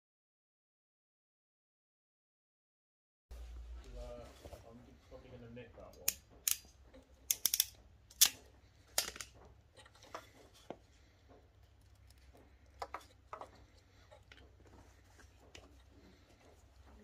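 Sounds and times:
crimping tool clicks: 0:06.0 - 0:06.7, 0:07.3 - 0:09.3
wires being cut: 0:06.0 - 0:10.7.

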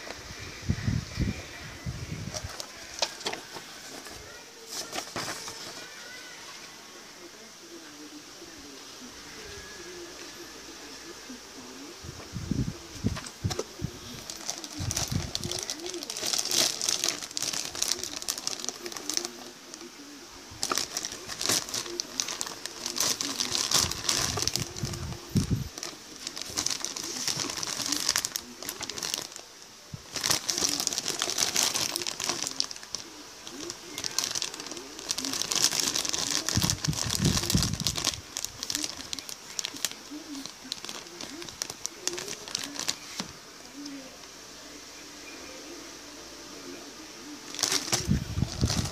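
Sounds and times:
plastic bags crinkling: 0:02.2 - 0:06.2, 0:13.0 - 0:43.4, 0:47.5 - 0:48.9.

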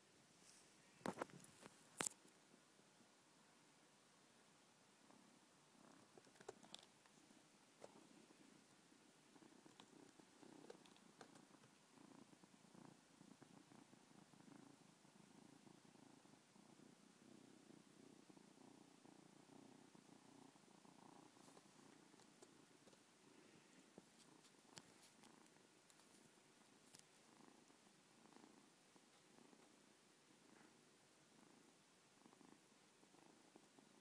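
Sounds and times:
kitten purring: 0:04.7 - 0:34.0.

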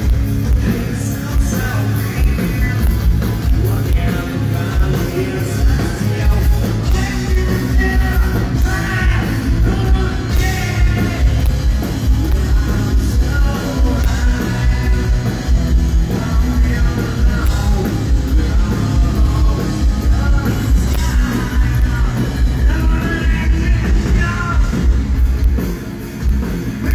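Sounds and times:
vocalist singing: 0:00.0 - 0:25.0
live rock band playing: 0:00.0 - 0:26.9.

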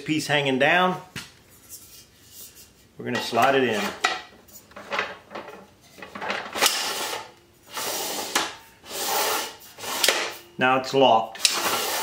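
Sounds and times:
metal arm scraping: 0:01.7 - 0:10.5, 0:11.4 - 0:12.0.

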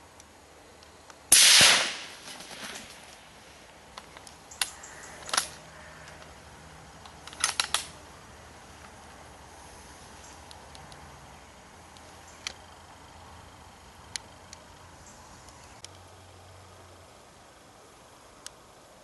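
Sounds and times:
rifle shot: 0:01.3 - 0:02.3.

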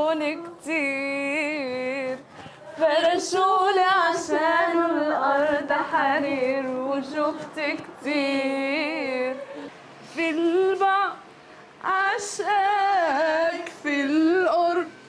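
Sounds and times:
woman singing unaccompanied: 0:00.0 - 0:15.0.

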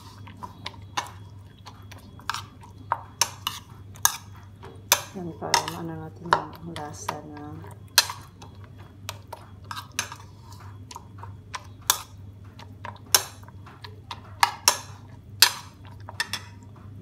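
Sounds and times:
metal spoon clinking against bowl: 0:01.9 - 0:08.5.

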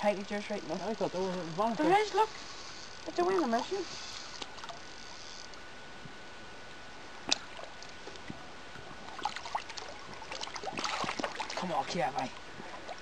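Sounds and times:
lake water lapping: 0:07.3 - 0:13.0.

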